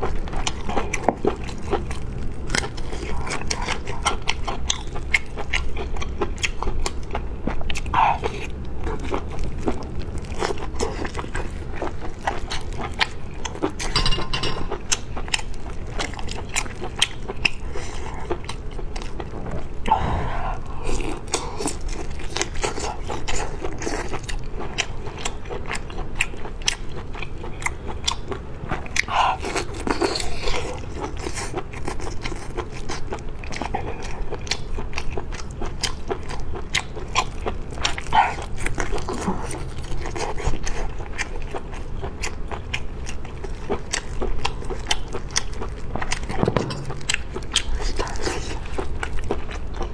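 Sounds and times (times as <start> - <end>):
biting and chewing sausages: 0.0 - 49.9
crisp crunches: 43.4 - 49.9.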